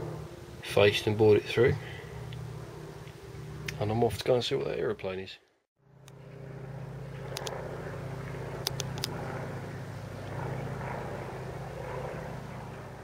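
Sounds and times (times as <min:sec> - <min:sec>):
propeller aircraft engine droning: 0:00.0 - 0:05.1, 0:05.8 - 0:13.0
sharp clicks: 0:07.3 - 0:07.6, 0:08.6 - 0:09.2.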